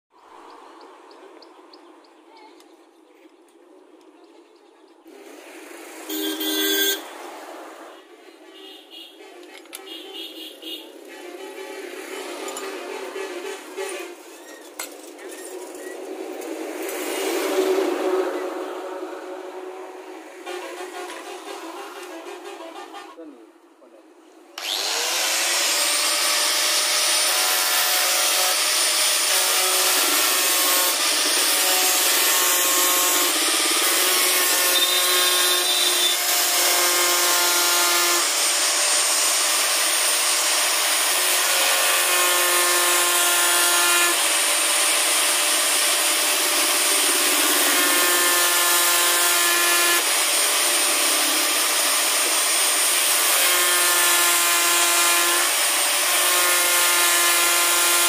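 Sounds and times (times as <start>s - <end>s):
electric wood planer running: 24.6s - 58.0s.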